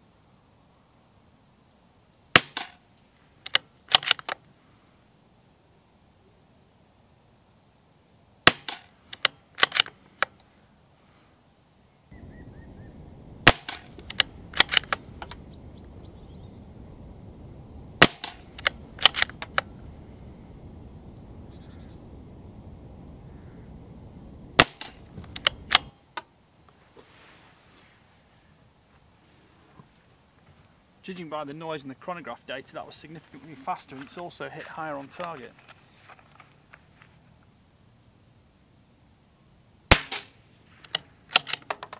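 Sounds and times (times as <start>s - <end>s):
low background noise: 0.0s - 41.9s
rifle shots: 2.4s - 2.8s, 8.4s - 8.9s, 13.4s - 15.4s, 18.0s - 19.6s, 24.6s - 25.9s, 39.9s - 40.4s
rifle bolt clicking: 3.5s - 4.4s, 8.6s - 10.3s, 13.5s - 15.0s, 18.0s - 19.7s, 40.9s - 41.9s.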